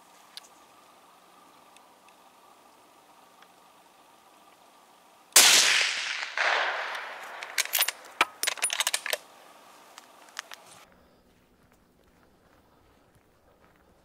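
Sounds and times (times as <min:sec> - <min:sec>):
rifle shot echoing: 0:05.4 - 0:08.1
sharp clicks and knocks: 0:06.4 - 0:09.2.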